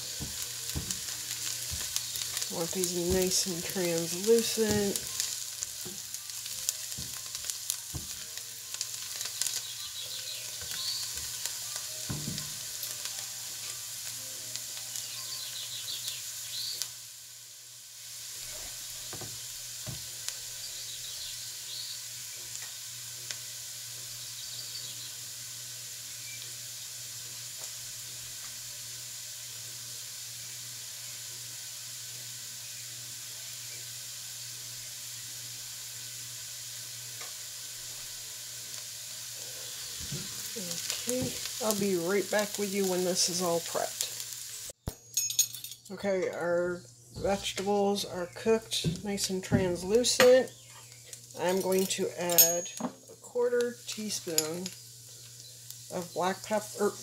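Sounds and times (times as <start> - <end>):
vegetables sizzling in a pot: 0.0 - 57.0
spatula stirring and tapping pot: 0.2 - 5.2, 7.9 - 8.2.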